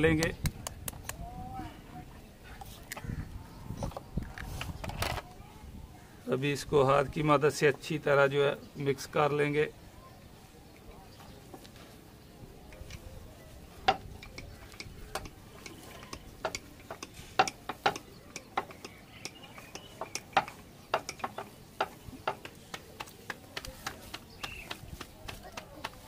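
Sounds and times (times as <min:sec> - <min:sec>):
fingers tapping metal bowl: 0:13.9 - 0:22.5.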